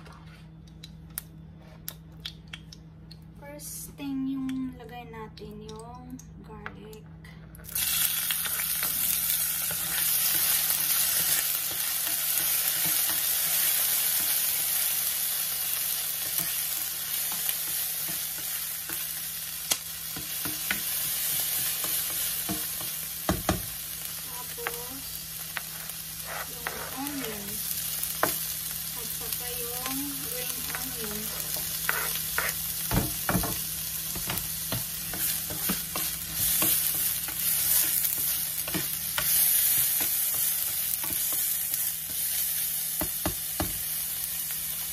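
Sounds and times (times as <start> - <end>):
garlic sizzling in hot oil: 7.7 - 44.9
spatula scraping pan: 25.6 - 27.6, 30.2 - 32.9.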